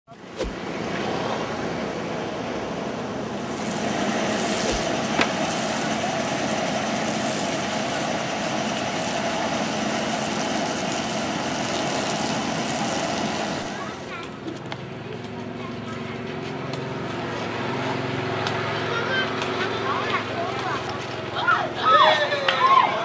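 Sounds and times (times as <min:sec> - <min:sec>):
outdoor street noise: 0:00.1 - 0:23.0
vehicle engine idling: 0:00.2 - 0:22.3.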